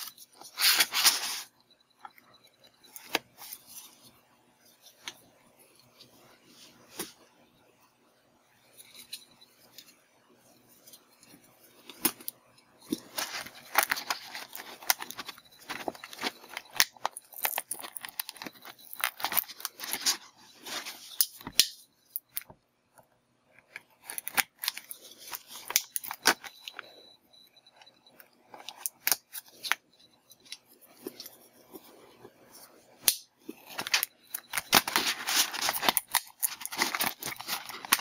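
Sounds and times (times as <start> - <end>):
sharp clicks of packaging: 12.9 - 20.2, 24.0 - 26.9, 33.0 - 38.0
packaging crinkling and rustling: 12.9 - 22.4, 23.8 - 27.0, 33.4 - 38.0.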